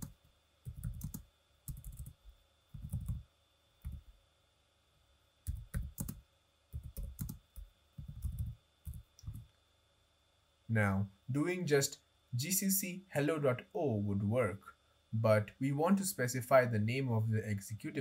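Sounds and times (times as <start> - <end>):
typing on computer keyboard: 0.7 - 2.2, 2.8 - 3.2, 5.5 - 6.2, 6.8 - 7.4, 8.0 - 9.4.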